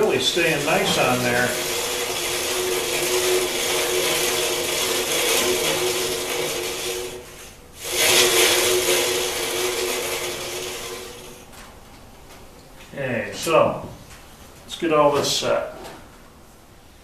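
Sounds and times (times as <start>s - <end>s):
bandsaw wheels whirring: 0.0s - 11.6s.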